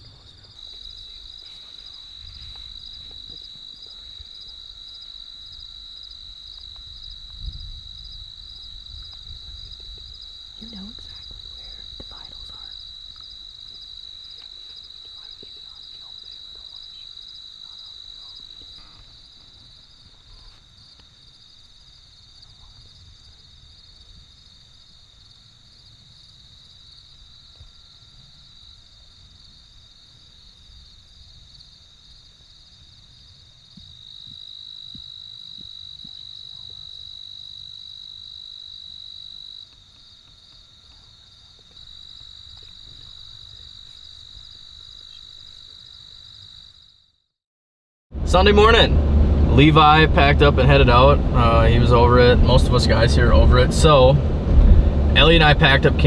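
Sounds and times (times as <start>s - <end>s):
wind rumble on microphone: 0.0s - 13.6s, 48.2s - 56.0s
crickets trilling: 0.0s - 47.2s.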